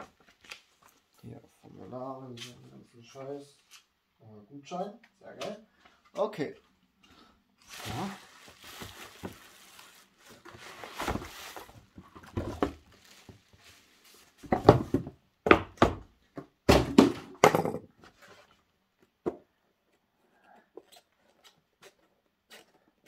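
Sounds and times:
bubble wrap and cardboard rustling: 0.0 - 1.3, 7.6 - 15.2
box thunking on wooden table: 14.4 - 16.0, 16.6 - 17.9.

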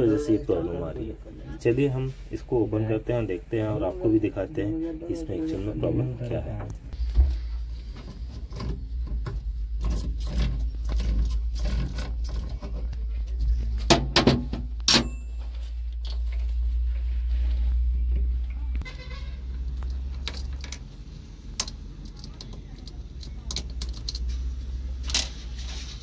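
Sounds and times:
ringing metal clinks: 14.9 - 15.6
wrench clicking and scraping on bolts: 21.5 - 25.4.

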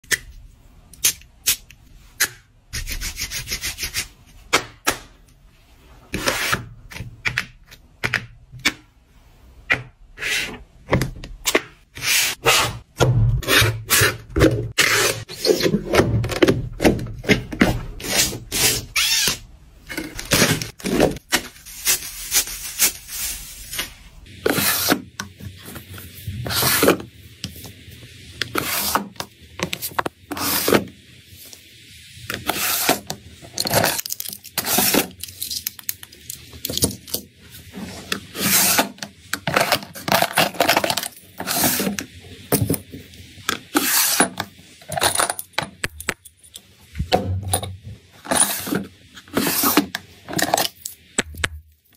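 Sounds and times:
cardboard folding and rubbing: 11.9 - 16.2, 20.2 - 27.8, 37.5 - 40.7, 48.3 - 50.6.

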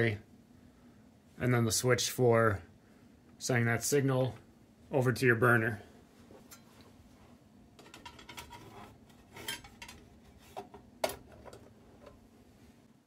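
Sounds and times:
sheet metal clinking and rattling: 7.8 - 10.1.

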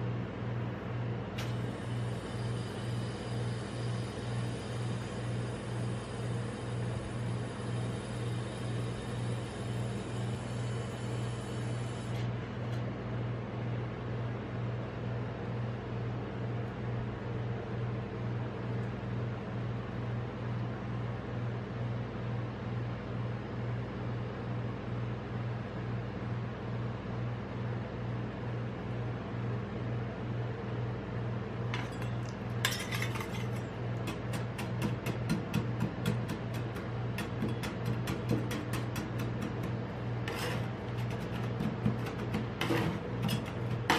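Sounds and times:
refrigeration compressor hum: 0.0 - 23.6, 25.5 - 43.9
metal spatulas scraping steel plate: 31.8 - 33.7, 40.2 - 43.9.

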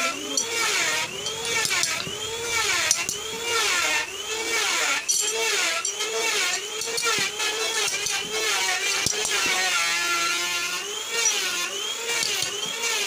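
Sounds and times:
metal squealing: 0.0 - 11.7.

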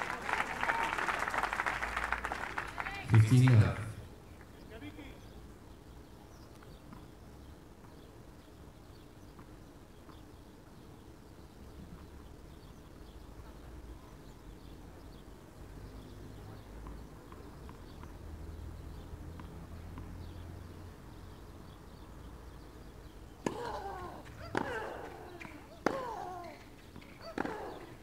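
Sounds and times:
racket striking tennis ball: 23.4 - 26.2, 27.0 - 27.8.

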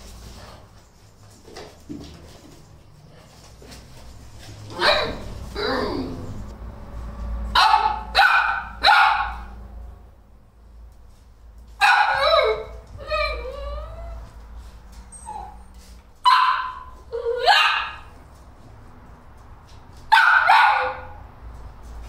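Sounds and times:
puppies barking: 4.7 - 6.5, 7.5 - 9.6, 11.8 - 14.2, 16.2 - 18.2, 20.1 - 21.2
puppy howling: 12.1 - 14.2.

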